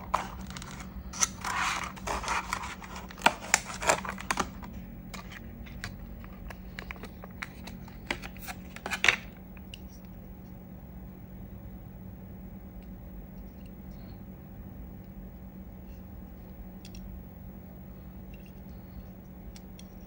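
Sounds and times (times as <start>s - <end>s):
plastic packaging crackling: 0.0s - 9.4s.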